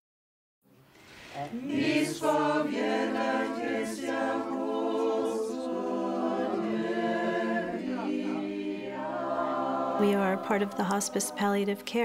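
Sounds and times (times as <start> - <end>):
choir singing a cappella: 1.4 - 12.0.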